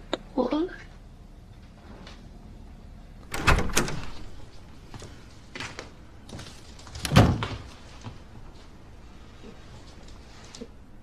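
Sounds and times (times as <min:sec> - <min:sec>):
door latch clunks: 0:03.3 - 0:04.2.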